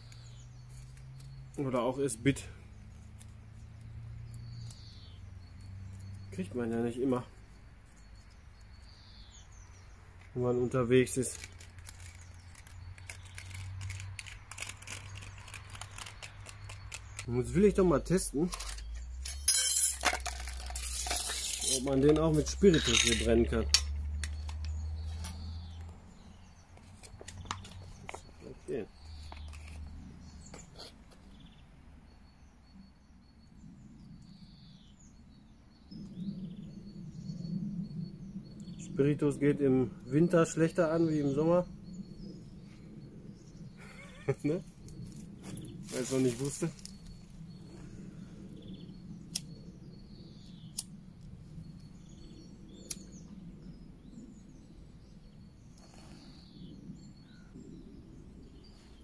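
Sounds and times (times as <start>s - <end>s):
faint bird chirps: 0.0s - 20.0s, 20.8s - 59.0s
small clicks: 11.3s - 17.3s.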